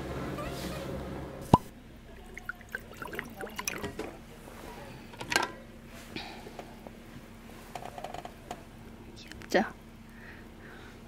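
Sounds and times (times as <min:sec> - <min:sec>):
jug clicks: 0:01.5 - 0:04.2
liquid pouring into a mug: 0:02.2 - 0:04.1.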